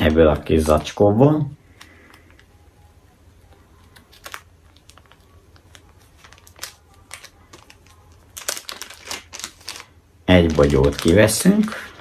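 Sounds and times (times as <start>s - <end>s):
plastic bag crinkling: 3.9s - 12.0s.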